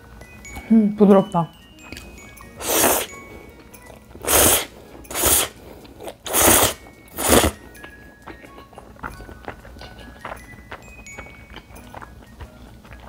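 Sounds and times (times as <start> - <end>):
slurping noodles: 2.6 - 3.2, 4.2 - 7.6.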